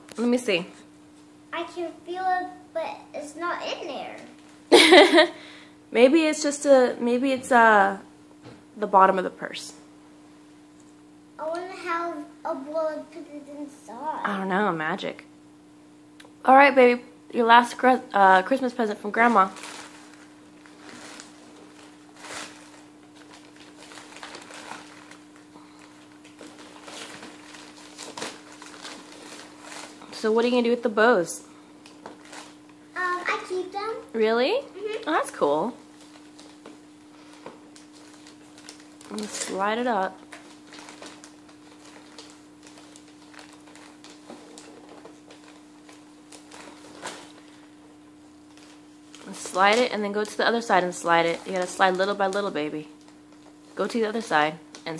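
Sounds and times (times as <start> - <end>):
faint steady hum: 0.0 - 54.9
wrapping paper rustling: 19.1 - 30.6, 31.8 - 34.0, 35.8 - 54.9.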